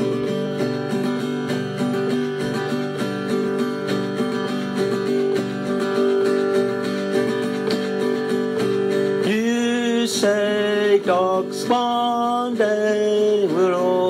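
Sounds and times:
acoustic guitar strumming: 0.0s - 14.0s
man singing: 9.1s - 14.0s.

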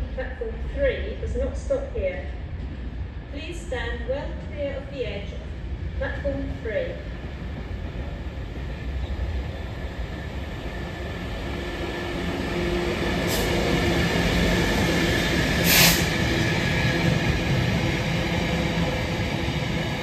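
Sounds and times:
diesel locomotive engine: 0.0s - 20.0s
air hiss: 15.6s - 16.2s.

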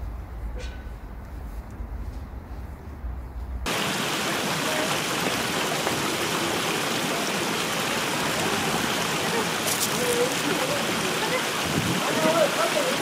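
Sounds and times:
stream splashing over cascade: 3.7s - 13.0s
wind rumble on microphone: 11.5s - 12.6s.

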